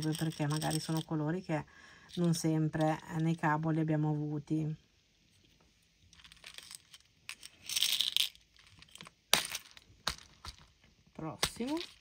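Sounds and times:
glass beads rattling: 0.0s - 1.3s, 2.0s - 3.4s, 6.1s - 10.8s, 11.4s - 12.0s.

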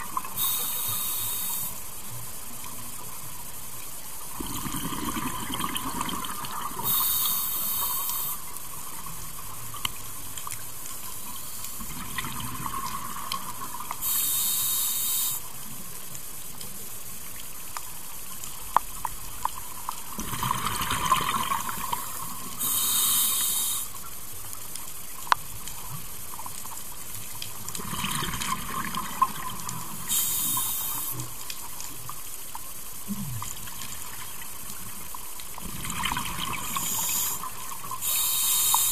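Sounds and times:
scuba regulator hissing inhalations: 0.4s - 1.8s, 6.8s - 8.5s, 14.0s - 15.5s, 22.6s - 24.0s, 30.1s - 31.2s, 36.6s - 38.9s
exhaled bubbles underwater: 4.3s - 10.1s, 11.8s - 14.4s, 20.1s - 23.8s, 27.6s - 31.4s, 35.5s - 38.8s.

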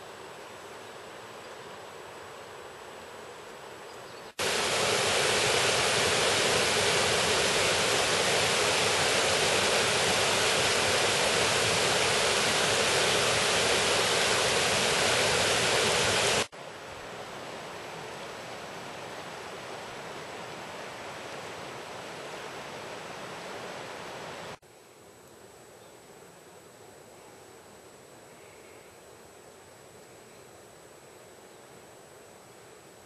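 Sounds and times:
faint outdoor ambience: 0.0s - 33.0s
water rushing over rocks: 4.4s - 16.5s.

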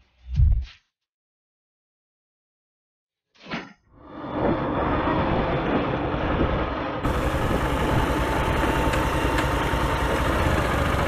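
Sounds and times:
wind and road noise: 4.0s - 11.0s
motorbike engine running: 7.0s - 11.0s.

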